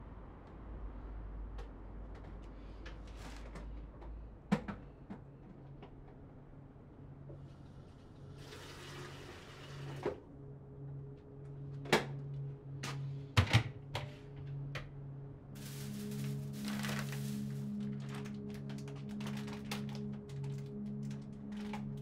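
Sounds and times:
low steady hum: 0:03.4 - 0:08.6, 0:09.8 - 0:22.0.

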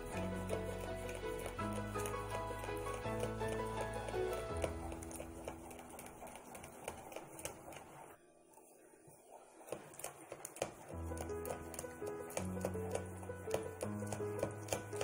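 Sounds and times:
background music: 0:00.0 - 0:07.2, 0:10.9 - 0:15.0
whisk scraping glass bowl: 0:00.0 - 0:08.2, 0:09.6 - 0:15.0.

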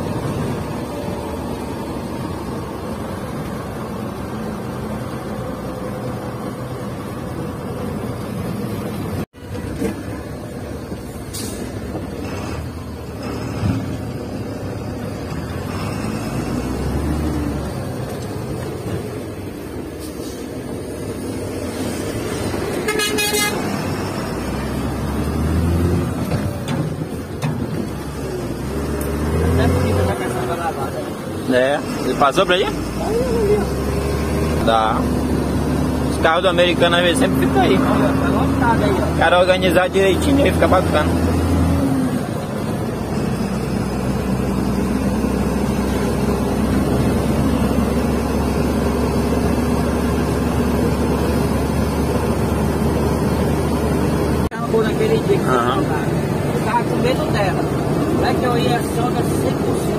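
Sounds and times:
diesel truck engine running: 0:00.0 - 0:59.9
road noise: 0:00.0 - 0:59.9
truck horn blast: 0:22.8 - 0:23.9.

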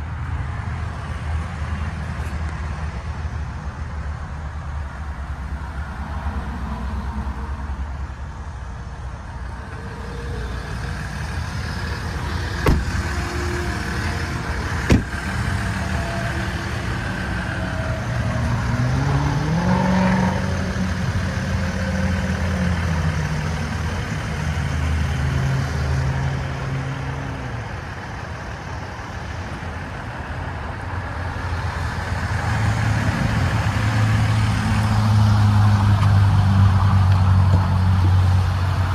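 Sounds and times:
diesel engine idling: 0:06.5 - 0:19.0, 0:20.3 - 0:38.9
sharp knocks: 0:12.6 - 0:13.0.

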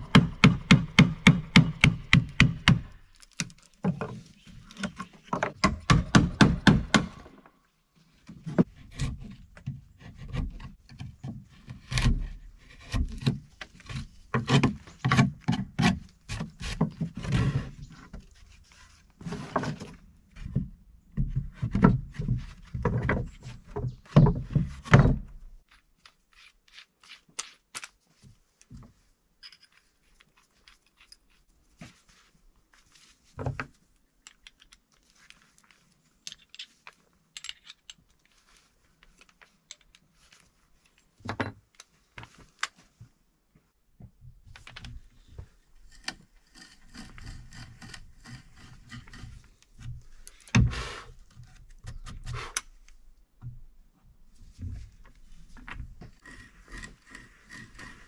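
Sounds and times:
hammer striking chisel into wood: 0:00.0 - 0:02.8, 0:05.6 - 0:07.3
wood splitting: 0:00.0 - 0:07.4, 0:08.6 - 0:17.8, 0:45.9 - 0:52.6, 0:55.8 - 0:58.0
wood scrapes and clicks: 0:08.3 - 0:20.5, 0:44.5 - 0:52.8, 0:54.8 - 0:58.0.

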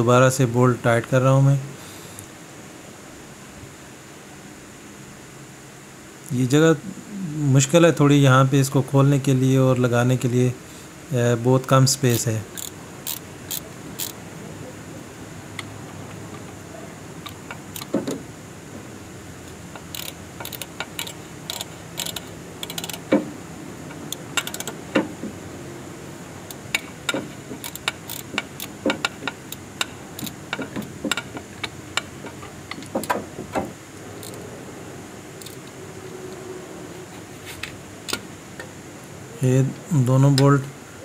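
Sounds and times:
ratchet wrench clicking: 0:12.1 - 0:14.2, 0:17.2 - 0:18.0, 0:19.7 - 0:23.1, 0:23.9 - 0:24.8, 0:26.5 - 0:33.2, 0:34.2 - 0:34.5, 0:35.4 - 0:35.7.

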